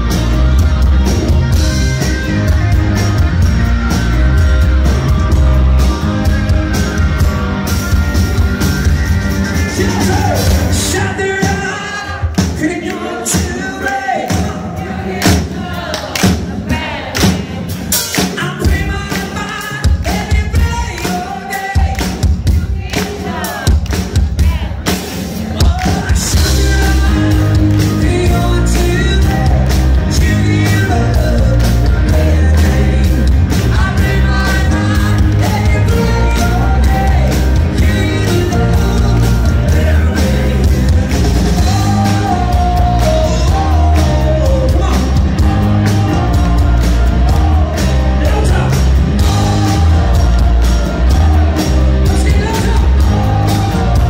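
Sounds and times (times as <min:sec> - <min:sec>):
live rock band playing: 0:00.0 - 0:54.0
man singing: 0:09.6 - 0:15.7, 0:18.2 - 0:54.0.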